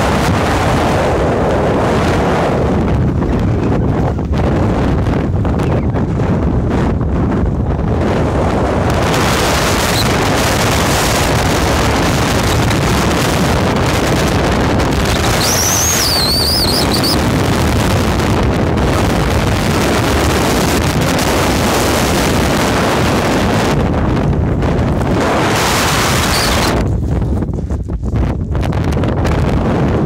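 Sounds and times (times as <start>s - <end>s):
strong wind roaring on microphone: 0.0s - 30.0s
wavering high whistle: 15.2s - 17.2s, 26.2s - 26.7s.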